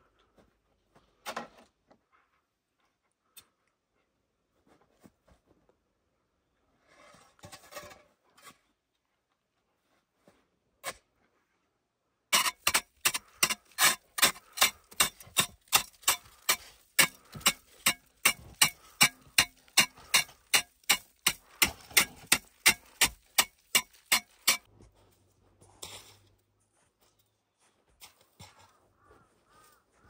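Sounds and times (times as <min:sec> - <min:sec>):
hatchet chopping packed snow: 0:12.4 - 0:24.7.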